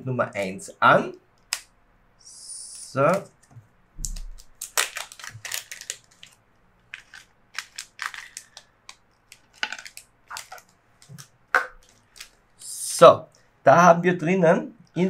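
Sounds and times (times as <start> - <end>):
plastic bag crinkling: 4.0 - 12.4.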